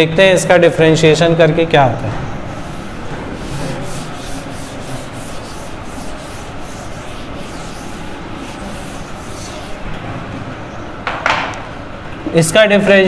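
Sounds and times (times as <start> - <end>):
scratchy handwriting strokes: 2.6 - 9.9.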